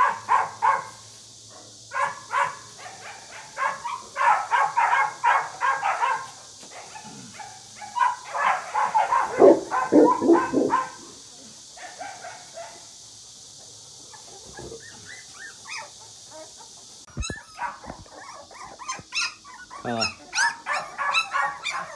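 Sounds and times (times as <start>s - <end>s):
puppies whining and yelping: 9.1s - 11.0s, 14.2s - 21.9s.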